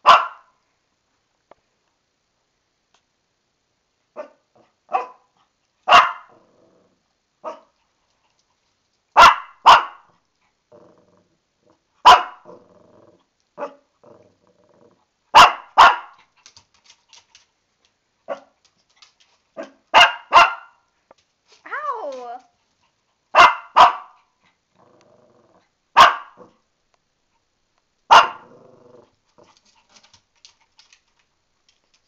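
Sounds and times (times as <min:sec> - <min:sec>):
puppy growling: 0:06.3 - 0:07.1, 0:10.6 - 0:15.1, 0:24.4 - 0:26.7, 0:28.1 - 0:31.0.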